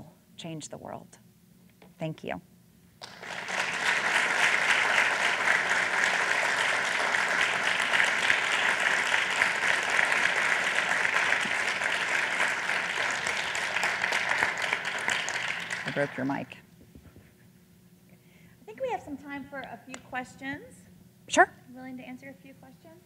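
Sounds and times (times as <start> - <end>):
audience applauding: 3.0 - 16.6.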